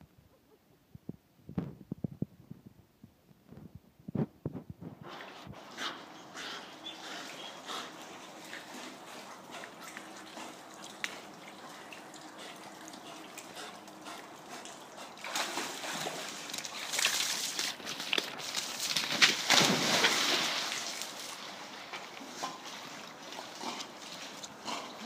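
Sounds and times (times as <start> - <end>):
dog swimming splashing water: 7.2 - 25.0.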